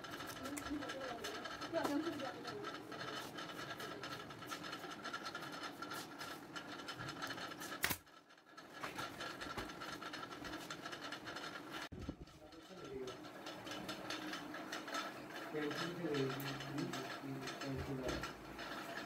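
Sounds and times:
steady mechanical hum: 0:00.0 - 0:19.0
sharp click: 0:07.8 - 0:08.0.

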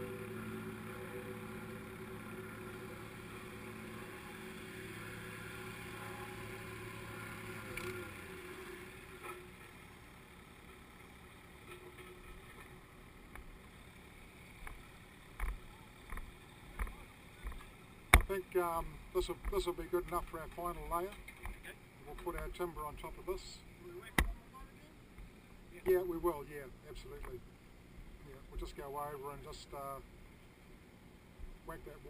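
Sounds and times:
plate compactor engine running: 0:00.0 - 0:18.2.

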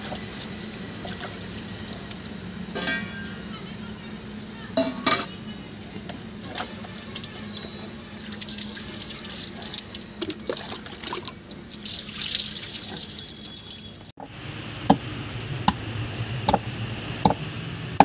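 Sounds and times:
water splashing on concrete: 0:08.1 - 0:13.9.

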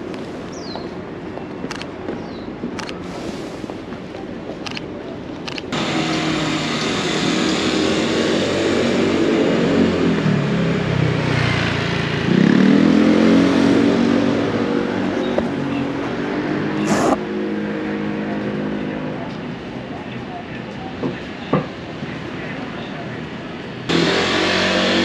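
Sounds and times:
vehicle engine passing: 0:05.8 - 0:19.0, 0:23.9 - 0:25.0.

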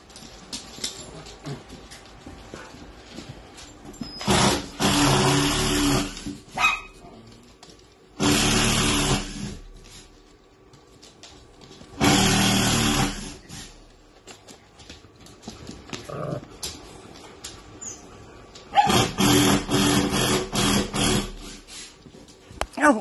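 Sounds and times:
dog growling low: 0:16.0 - 0:16.6.

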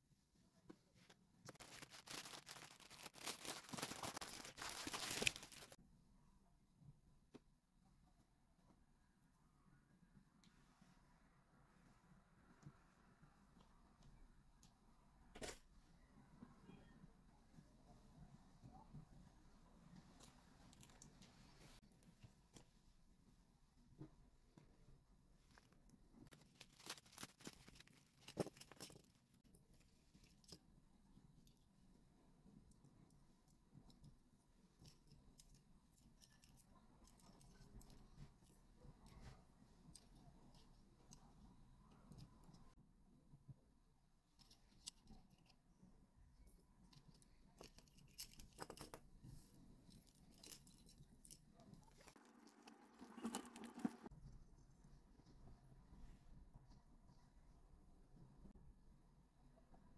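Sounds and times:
plastic wrapping rustling: 0:01.5 - 0:05.8, 0:26.3 - 0:29.2.

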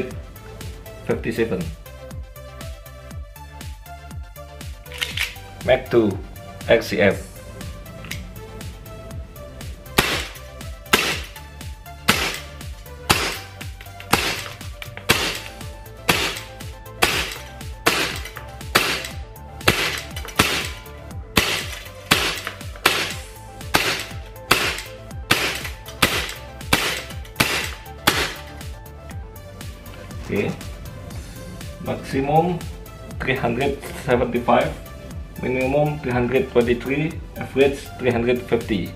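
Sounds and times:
background music: 0:00.0 - 0:38.9
airsoft pistol shots: 0:10.0 - 0:11.4, 0:12.1 - 0:12.5, 0:13.1 - 0:13.5, 0:14.1 - 0:15.5, 0:16.1 - 0:20.8, 0:21.4 - 0:28.5.

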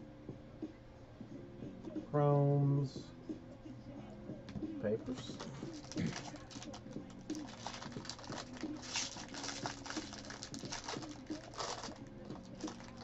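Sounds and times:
cards rustling: 0:05.1 - 0:13.0
foil wrapper crinkling: 0:05.3 - 0:13.0.

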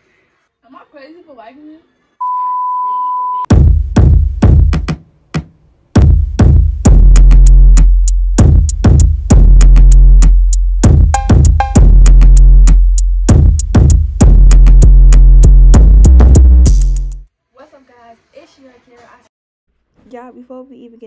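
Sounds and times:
electronic music with heavy bass: 0:06.0 - 0:17.2.

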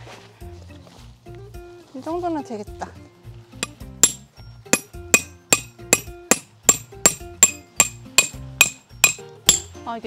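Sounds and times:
hammer striking metal tent peg: 0:03.6 - 0:09.8.

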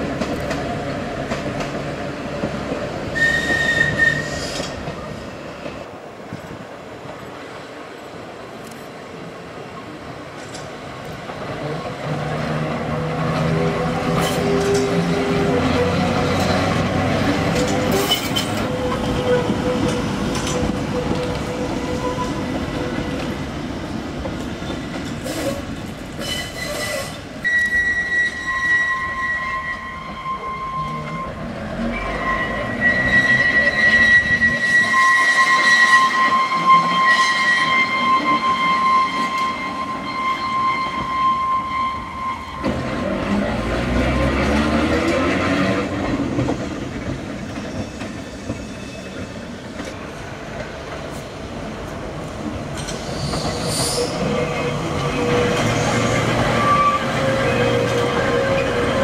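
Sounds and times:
tram rumbling on track: 0:00.0 - 0:59.0
high-pitched wheel squeal: 0:03.2 - 0:04.8, 0:26.2 - 0:43.0, 0:47.6 - 0:49.5, 0:53.0 - 0:59.0.

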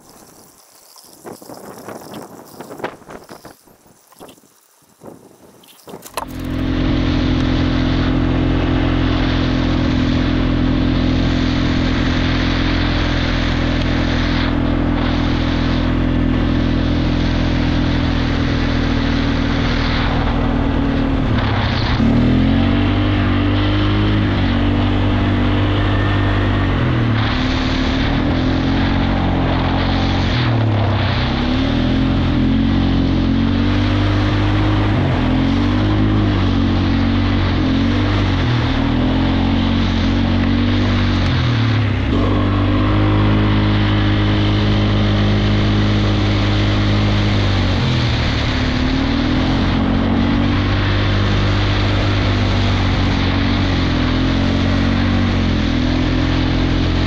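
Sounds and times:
four-wheeler engine running: 0:00.0 - 0:05.1, 0:05.7 - 0:57.0
wind on microphone: 0:00.0 - 0:08.3.

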